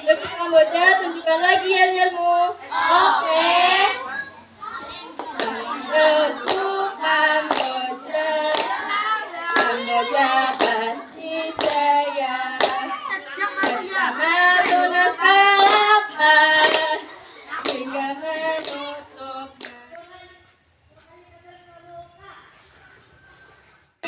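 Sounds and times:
girls singing together: 0.0 - 20.4
hand claps on a steady beat: 5.2 - 7.9, 8.5 - 8.9, 9.5 - 10.9, 11.6 - 11.9, 12.5 - 12.9, 13.6 - 13.8, 14.6 - 16.0, 16.6 - 17.0, 17.6 - 18.0.

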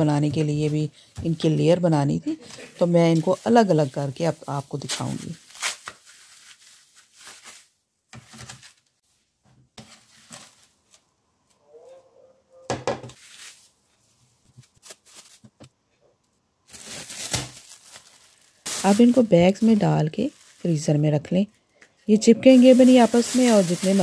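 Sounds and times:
plastic sheets crinkling: 2.4 - 9.0, 13.2 - 15.6, 16.7 - 21.5, 22.4 - 24.0.

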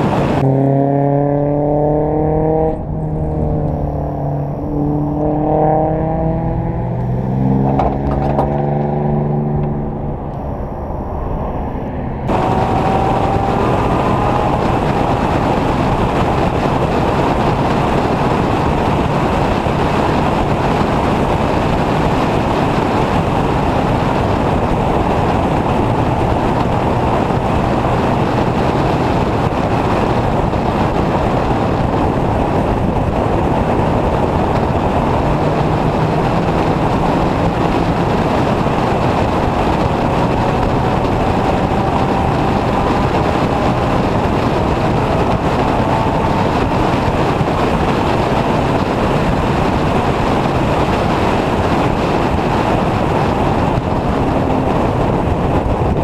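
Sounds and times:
race car engine running hard: 0.0 - 56.0
wind and road noise: 0.0 - 56.0.

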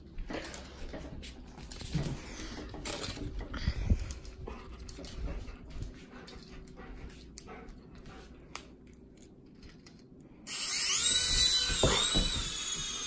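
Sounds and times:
toy helicopter whirring whine: 10.4 - 13.0.

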